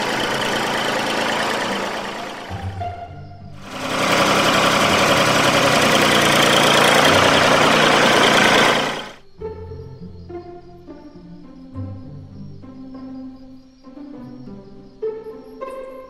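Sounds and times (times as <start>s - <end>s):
tractor engine running: 0.0s - 3.0s, 3.6s - 9.2s
background music: 1.6s - 4.7s, 6.4s - 16.0s.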